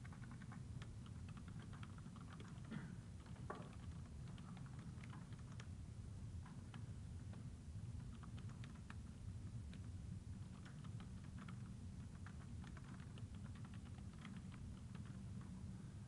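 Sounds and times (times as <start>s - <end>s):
keyboard typing: 0.0s - 5.7s, 8.0s - 9.0s, 9.7s - 15.6s
low steady hum: 0.0s - 16.0s.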